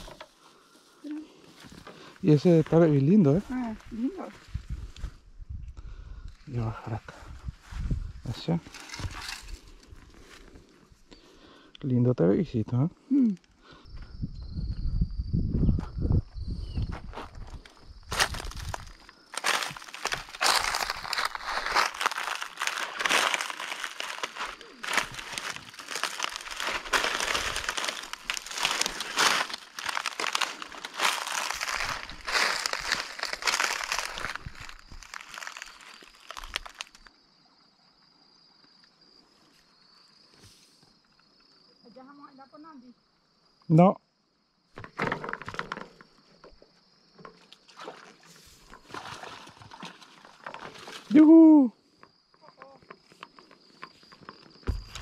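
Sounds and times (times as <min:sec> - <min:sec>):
faint insect hum: 0:00.0 - 0:55.0
rustling in wet vegetation: 0:17.6 - 0:37.1, 0:47.6 - 0:51.2
dry leaves crunching underfoot: 0:18.1 - 0:37.1.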